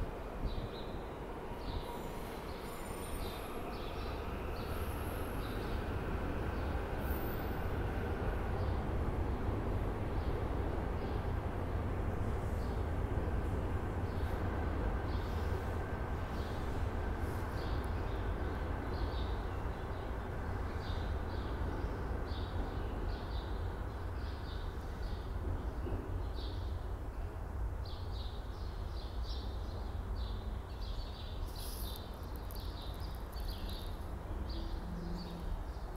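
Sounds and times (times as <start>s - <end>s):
low rumble of train shed: 0.0s - 35.9s
small birds chirping: 27.8s - 35.9s.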